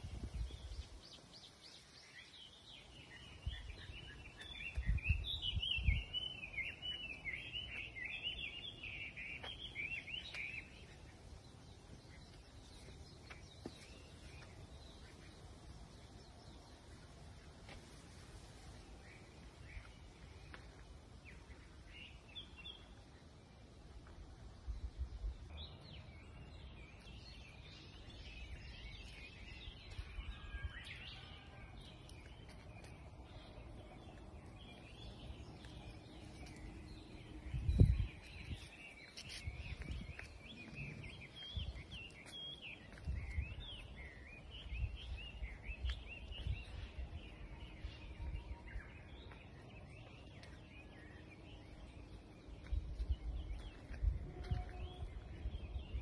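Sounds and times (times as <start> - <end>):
birds chirping: 25.5 - 56.0.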